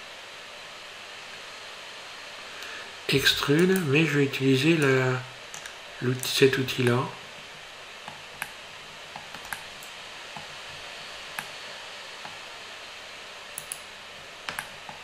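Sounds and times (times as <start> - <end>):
microphone hiss: 0.0 - 15.0
mouse and keyboard clicks: 9.2 - 10.5, 13.6 - 13.8.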